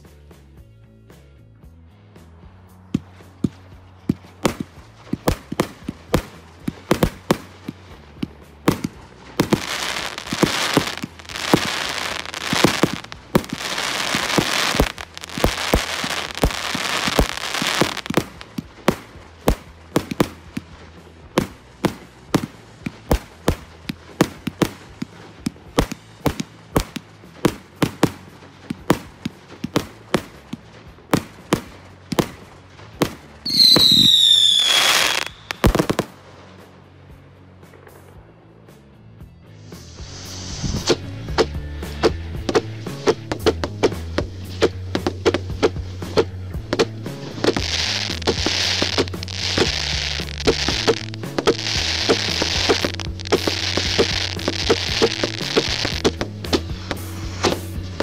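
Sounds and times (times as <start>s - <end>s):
firework bangs: 2.4s - 38.3s, 39.6s - 58.0s
firework whistle: 33.4s - 36.2s, 39.6s - 44.8s, 47.1s - 58.0s.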